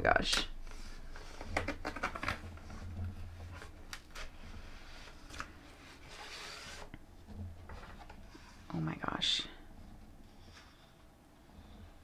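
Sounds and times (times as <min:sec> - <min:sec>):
cardboard and plastic wrap rustling: 0:00.6 - 0:08.7.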